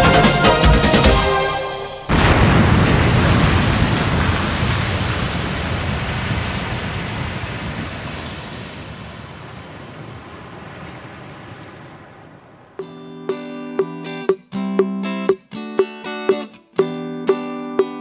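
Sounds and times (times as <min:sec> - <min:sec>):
explosion tail rumble with hiss: 0:02.1 - 0:12.8.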